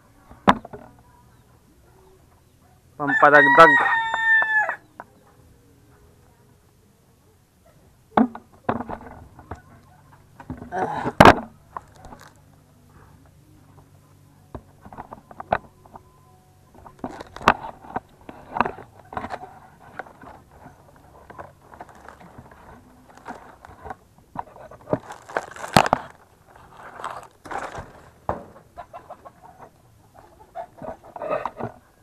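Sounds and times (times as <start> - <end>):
dry palm fronds rustling: 10.7 - 12.6, 16.7 - 29.2
sharp knocks and scrapes: 16.8 - 31.9.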